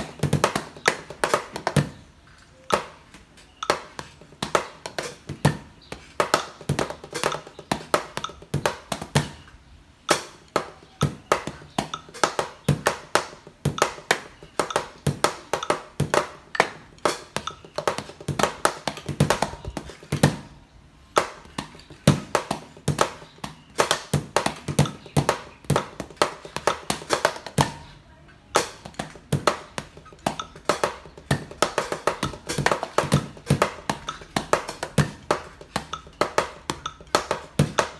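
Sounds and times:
drumsticks tapping on pads: 0:00.0 - 0:20.5, 0:21.1 - 0:27.9, 0:28.5 - 0:37.9
kick pedal beating: 0:21.2 - 0:27.8, 0:28.8 - 0:37.9.

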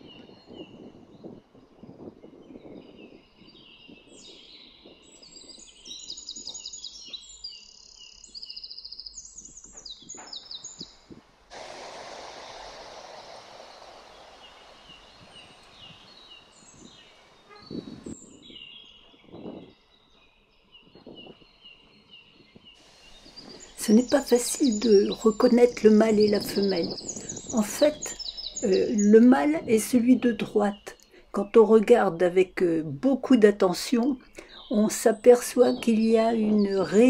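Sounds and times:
songbirds chirping and trilling: 0:00.0 - 0:11.2, 0:12.4 - 0:37.0
steady hiss: 0:10.4 - 0:18.6, 0:22.8 - 0:29.7.

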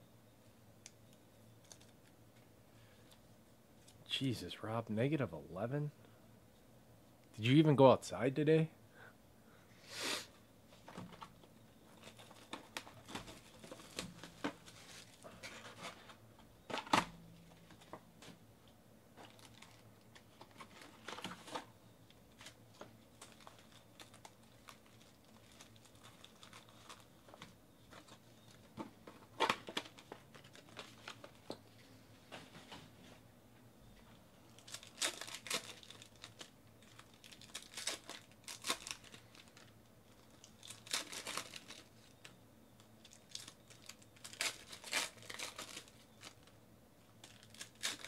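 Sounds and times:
wrappers crinkling and rustling: 0:10.8 - 0:18.4, 0:19.2 - 0:31.8, 0:34.4 - 0:48.0.

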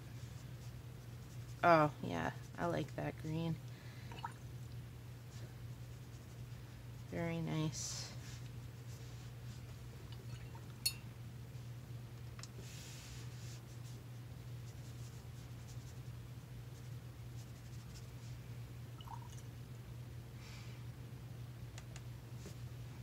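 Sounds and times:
brush strokes on paper: 0:08.2 - 0:09.7, 0:12.6 - 0:14.0.

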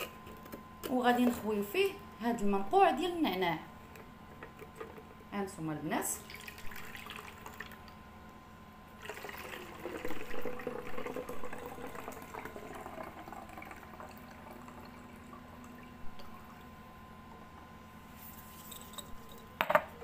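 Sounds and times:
liquid trickling into a bottle: 0:09.0 - 0:16.6.

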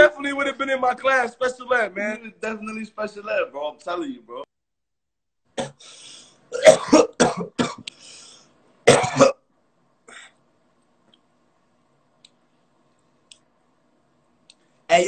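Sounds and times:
man clearing his throat: 0:06.5 - 0:07.9, 0:08.9 - 0:09.4
man coughing: 0:06.5 - 0:07.9, 0:08.9 - 0:09.4.

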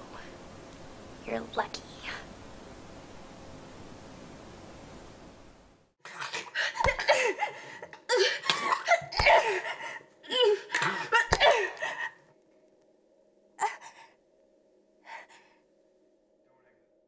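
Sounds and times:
person laughing: 0:06.1 - 0:12.2.

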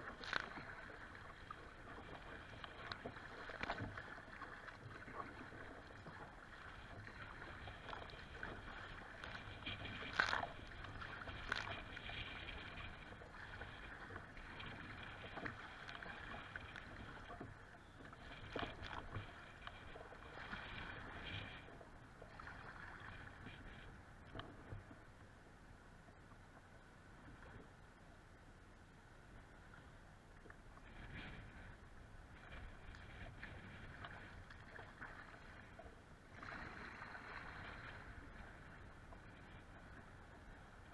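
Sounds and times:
water splashing against kayak hull: 0:00.0 - 0:25.5, 0:29.2 - 0:40.9.

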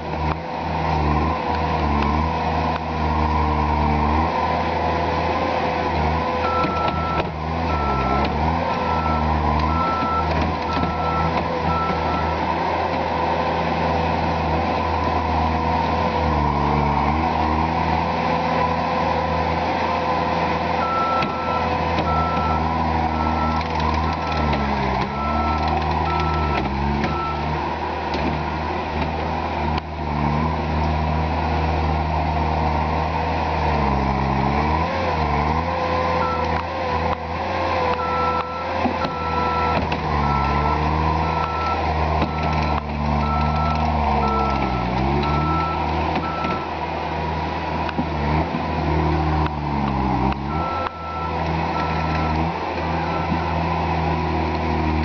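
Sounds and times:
diesel engine running hard: 0:00.0 - 0:55.0
reverse alarm beeping: 0:06.4 - 0:12.4, 0:20.8 - 0:27.5, 0:36.2 - 0:36.6, 0:38.0 - 0:46.7, 0:50.5 - 0:52.4, 0:53.0 - 0:53.6.

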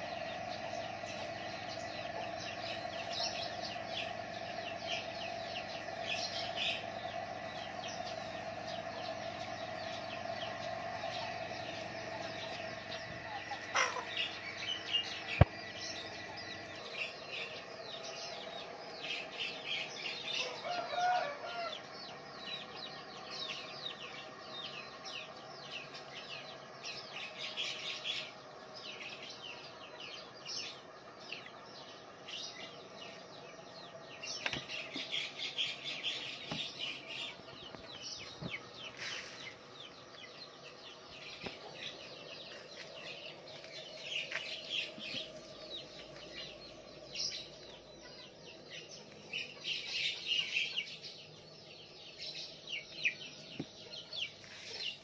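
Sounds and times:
small birds chirping: 0:00.0 - 0:55.0
steady hum: 0:00.0 - 0:55.0
chicken clucking: 0:11.2 - 0:15.4.

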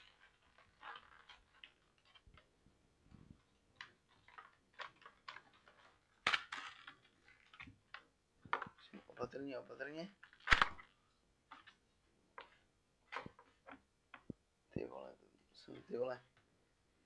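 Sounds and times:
cardboard packaging crinkling: 0:00.0 - 0:02.6, 0:03.4 - 0:09.2.

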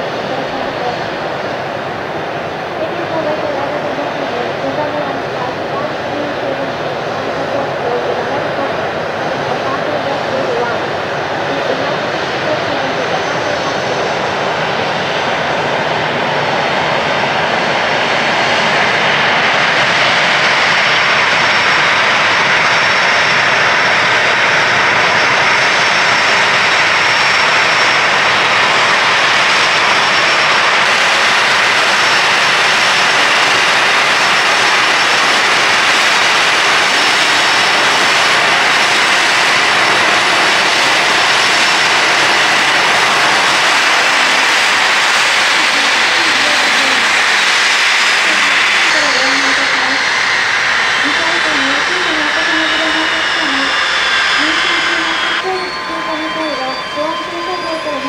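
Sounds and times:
jet engines roaring: 0:00.0 - 0:58.0
faint high whine: 0:48.1 - 0:58.0.

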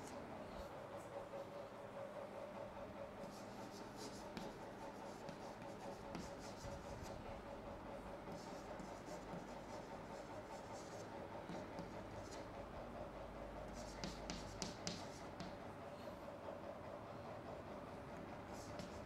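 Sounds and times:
steady low hum: 0:00.0 - 0:19.0
chalk scratching on chalkboard: 0:03.2 - 0:07.2, 0:08.2 - 0:12.5, 0:13.7 - 0:15.6, 0:18.5 - 0:19.0.

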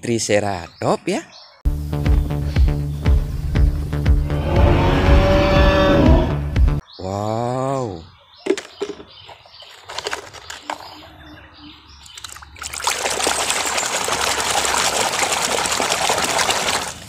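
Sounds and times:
toy splashing in water: 0:12.0 - 0:17.0
scrubbing and sloshing in foam: 0:12.2 - 0:17.0.

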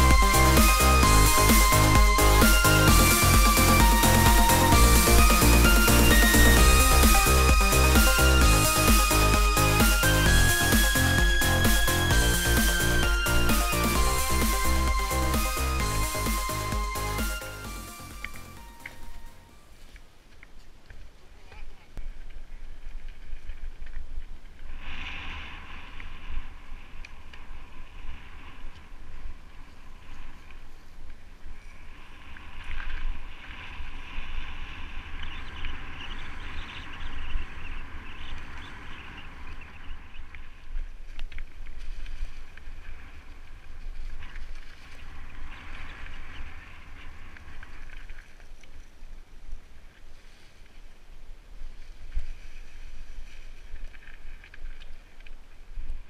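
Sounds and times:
bike tyres crunching over leaves: 0:18.6 - 0:56.0.

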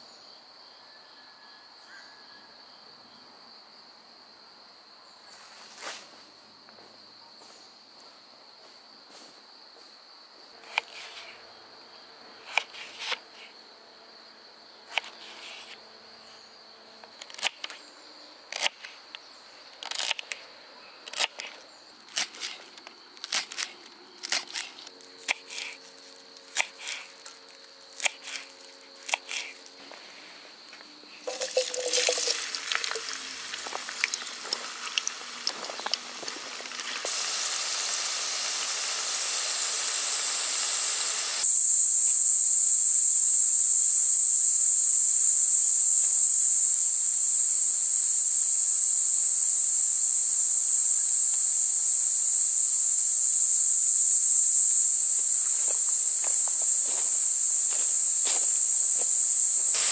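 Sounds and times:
high insect chirring: 0:14.8 - 0:29.9, 0:30.6 - 0:59.9
hiss: 0:31.3 - 0:59.9.

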